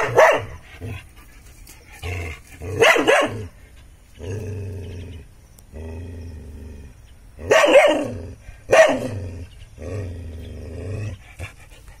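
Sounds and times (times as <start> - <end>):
dog barking: 0.0 - 0.6, 2.8 - 3.5, 7.5 - 8.1, 8.7 - 9.2
dog growling: 0.7 - 2.8, 4.2 - 12.0.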